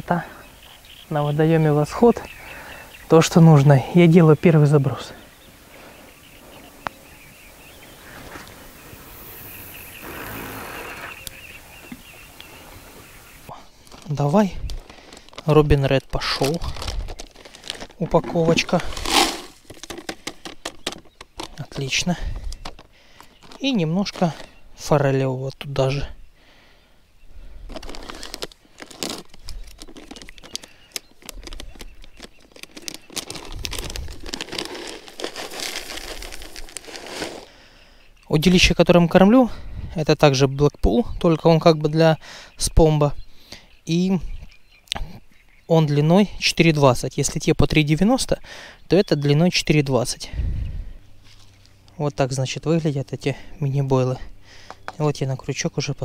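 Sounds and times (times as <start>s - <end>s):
fishing line hissing off reel: 8.8s - 11.3s
foil bag crinkling: 13.8s - 21.0s, 27.7s - 37.6s
pellets pattering into plastic bucket: 16.2s - 21.5s, 27.7s - 37.5s.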